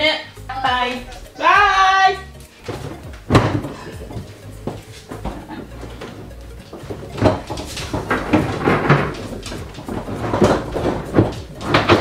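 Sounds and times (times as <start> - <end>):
fridge-freezer knocking and bumping: 2.7 - 12.0.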